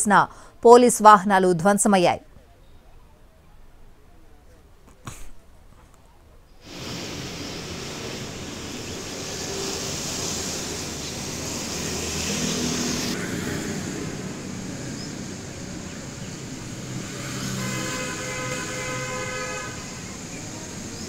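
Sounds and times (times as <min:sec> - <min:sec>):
faint traffic hum: 0:00.0 - 0:21.0
background hiss: 0:01.9 - 0:13.2.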